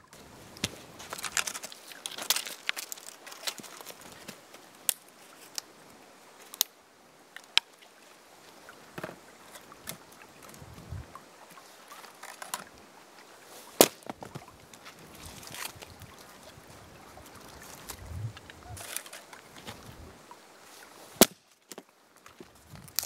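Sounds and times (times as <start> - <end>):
wood crackling and clattering: 0.1 - 5.6, 11.9 - 12.8, 17.4 - 20.0
sticks snapping: 0.6 - 5.7, 21.2 - 21.8.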